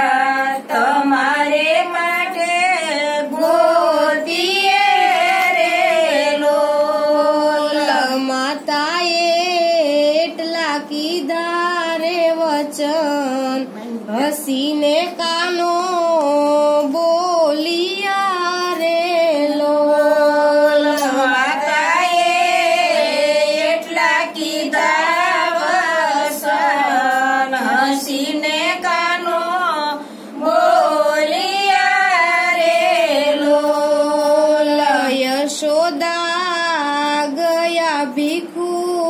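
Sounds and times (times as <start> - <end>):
women singing unaccompanied: 0.0 - 39.0.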